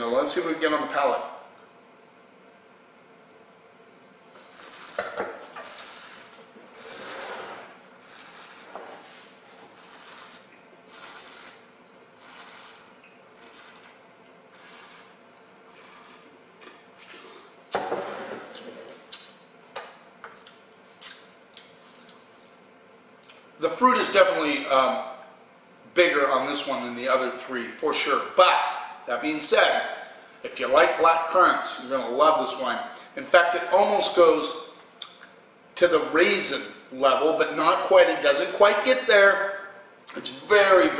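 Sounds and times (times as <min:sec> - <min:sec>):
short airy slurps: 0:14.6 - 0:16.3.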